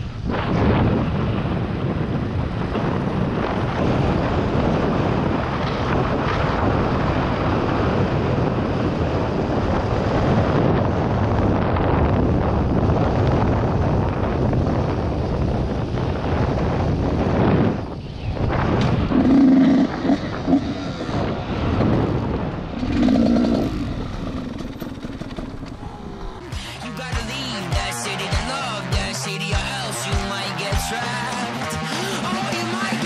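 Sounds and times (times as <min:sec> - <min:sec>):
wind noise on microphone: 0:00.0 - 0:31.0
motorcycle engine running: 0:19.1 - 0:30.3.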